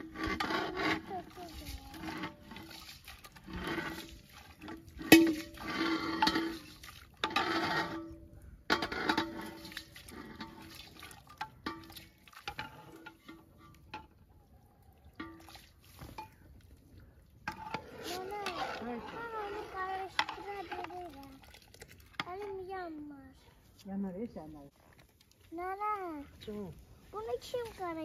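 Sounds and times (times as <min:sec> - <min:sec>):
ladle scraping metal pot: 0:00.0 - 0:14.2, 0:17.4 - 0:23.0
liquid sloshing and pouring: 0:00.0 - 0:23.1, 0:24.5 - 0:28.0.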